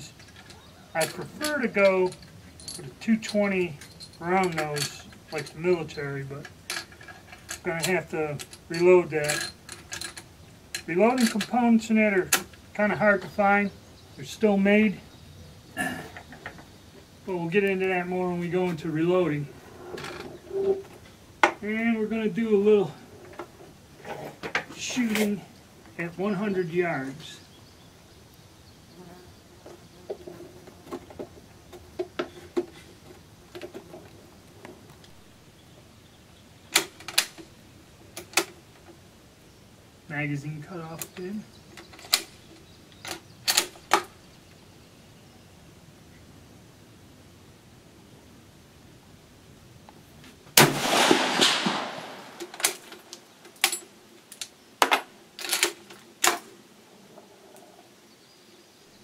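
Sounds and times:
rifle shot: 50.6 - 52.6.

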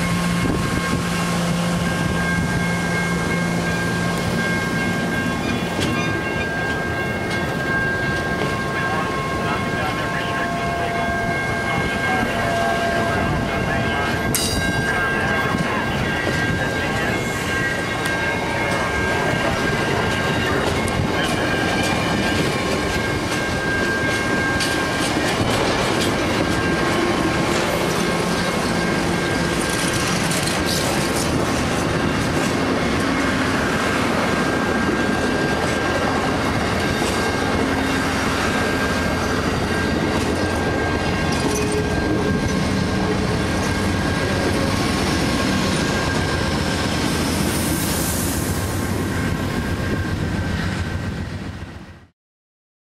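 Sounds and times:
train wheels clattering over rails: 18.0 - 47.9.

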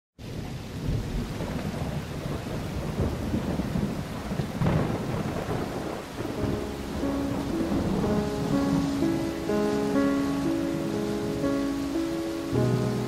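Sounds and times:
rain falling: 0.2 - 13.0
thunder rumbling: 0.2 - 13.0.

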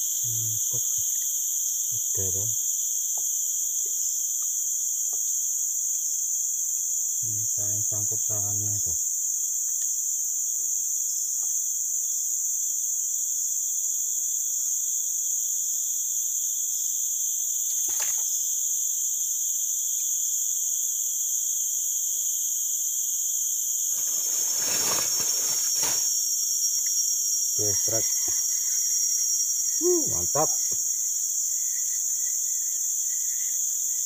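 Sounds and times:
insect chorus drone: 0.0 - 34.0
rustling: 23.9 - 26.2
handling noise scuff: 24.0 - 26.2.

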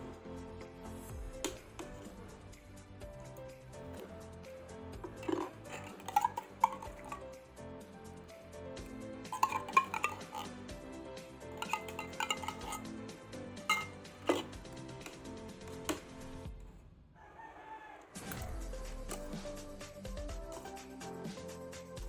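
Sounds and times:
background music: 0.0 - 17.0, 17.6 - 22.0
cutlery clinking on a plate: 11.6 - 12.8, 13.7 - 14.5.

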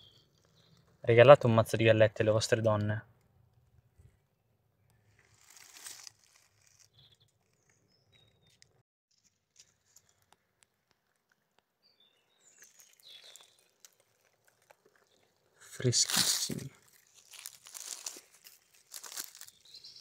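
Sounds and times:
dry leaves rustling: 5.1 - 7.0, 12.5 - 20.0
faint bird chirps: 6.6 - 8.7, 11.8 - 14.0.

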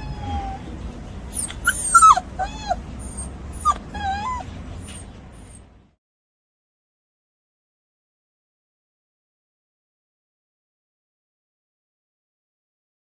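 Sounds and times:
puppies whining and yelping: 0.0 - 0.7, 1.3 - 5.7.

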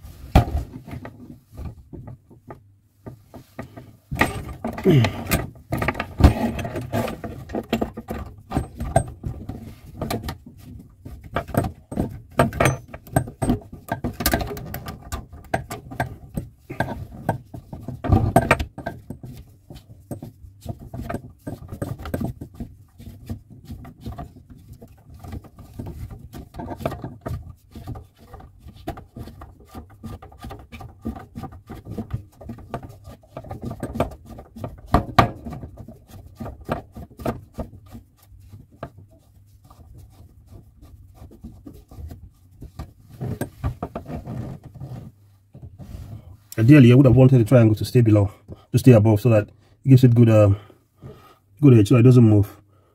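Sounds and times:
clicks and rattles of tap parts: 11.3 - 19.4.

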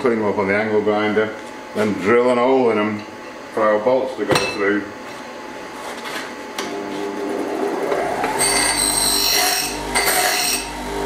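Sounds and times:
bench grinder running: 6.6 - 11.0
grinding steel on wheel: 8.0 - 11.0.

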